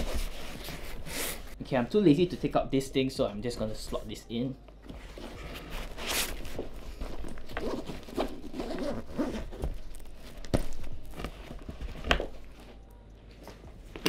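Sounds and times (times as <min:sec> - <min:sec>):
fabric rustling: 0:04.8 - 0:12.8
zipper running: 0:05.8 - 0:09.9.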